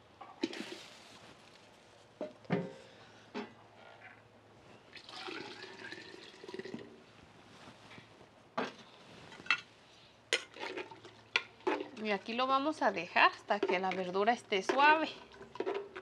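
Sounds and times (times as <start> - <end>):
water pouring into pot: 5.0 - 7.0
ladle stirring pot: 13.3 - 16.0.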